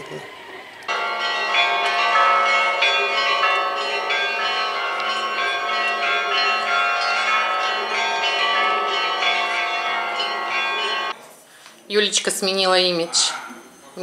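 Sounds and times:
church bells pealing: 0:00.0 - 0:11.2.

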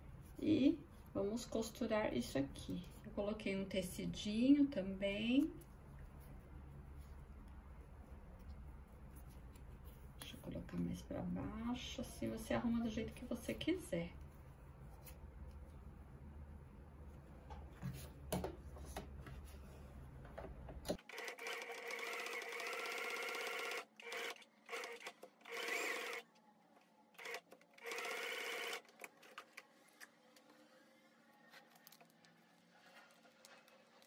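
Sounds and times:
sewing machine stitching: 0:21.0 - 0:26.2, 0:27.2 - 0:29.6.

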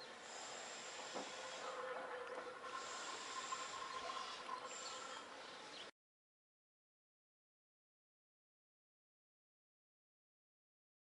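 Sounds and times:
outdoor background hiss: 0:00.0 - 0:05.9.

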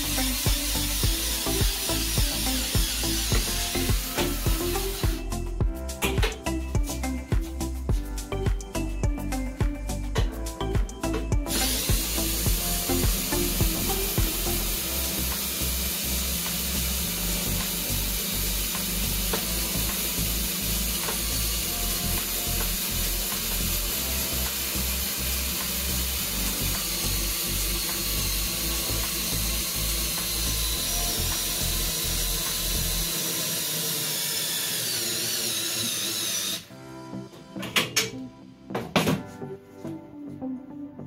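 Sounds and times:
cordless drill running: 0:00.0 - 0:05.4, 0:11.5 - 0:36.7.

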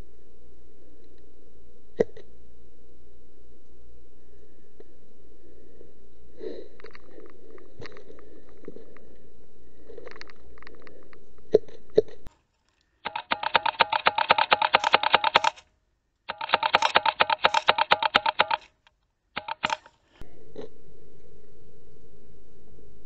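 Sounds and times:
airsoft rifles firing: 0:13.1 - 0:15.6, 0:16.3 - 0:18.8, 0:19.4 - 0:20.0.

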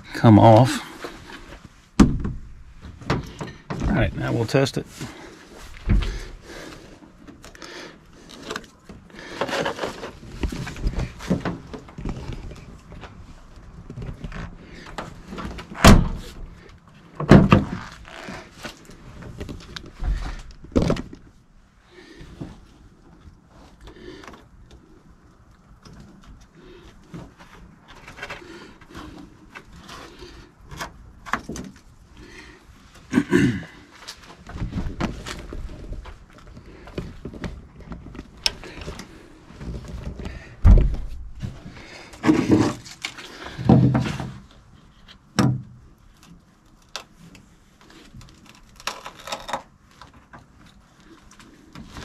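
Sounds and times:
rustling and scraping in truck bed: 0:00.1 - 0:52.0
dull knocks: 0:02.0 - 0:03.9, 0:40.3 - 0:41.6
tailgate clunks: 0:15.8 - 0:16.5.

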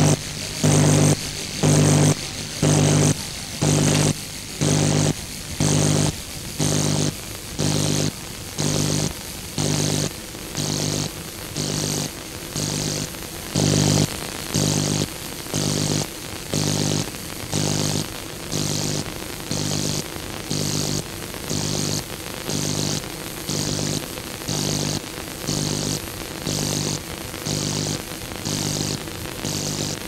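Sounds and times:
pulsing buzzing tone: 0:00.0 - 0:13.0
background hiss: 0:00.0 - 0:30.0.

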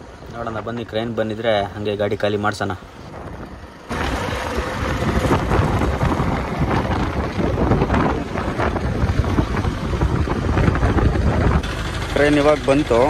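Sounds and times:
wind buffeting microphone: 0:02.9 - 0:11.7.

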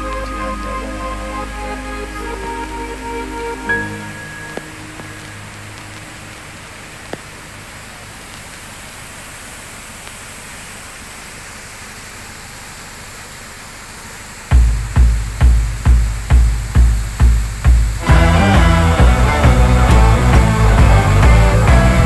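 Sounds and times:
steady rushing hiss: 0:00.0 - 0:22.0
electronic music bass beat: 0:14.5 - 0:22.0.

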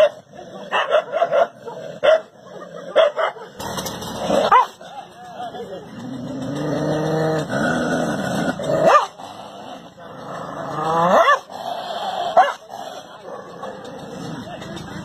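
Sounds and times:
dog barking: 0:00.0 - 0:03.6, 0:04.5 - 0:04.8, 0:08.8 - 0:09.2, 0:11.1 - 0:11.5, 0:12.4 - 0:12.7
dog growling: 0:00.0 - 0:14.5.

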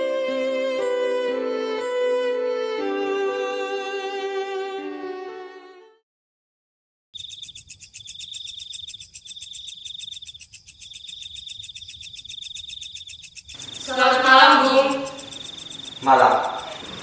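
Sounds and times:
crickets chirping: 0:07.2 - 0:17.0
person speaking: 0:13.8 - 0:15.2, 0:16.0 - 0:17.0.

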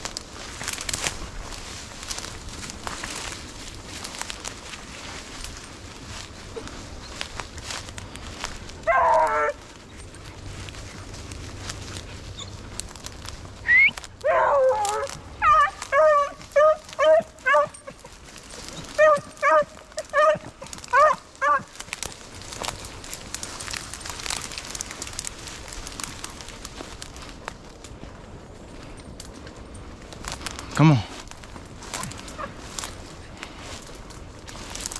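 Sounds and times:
dogs yelping: 0:08.8 - 0:13.0, 0:13.6 - 0:22.7.

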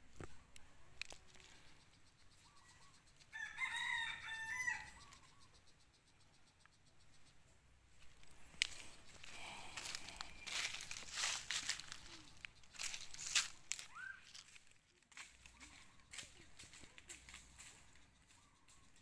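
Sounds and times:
rooster crowing: 0:03.3 - 0:05.1.

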